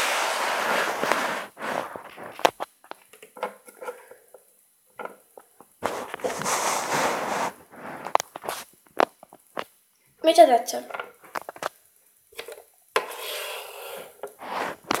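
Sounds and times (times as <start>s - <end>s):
rustling handling noise: 0.0s - 9.7s, 12.4s - 15.0s
plastic toys clicking on carpet: 10.9s - 11.8s.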